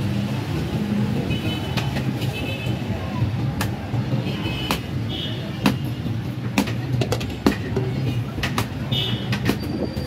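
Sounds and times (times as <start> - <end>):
steady traffic: 0.0 - 10.0.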